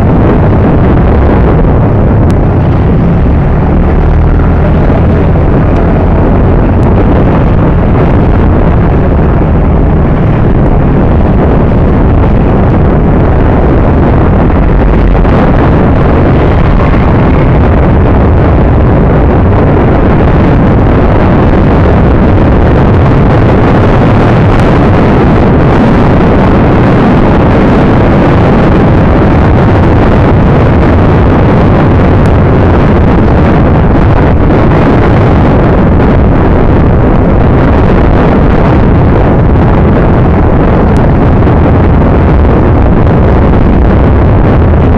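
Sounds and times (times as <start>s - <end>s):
motorcycle engine: 0.0s - 25.8s
traffic road noise: 0.0s - 44.9s
wind buffeting microphone: 0.0s - 44.9s.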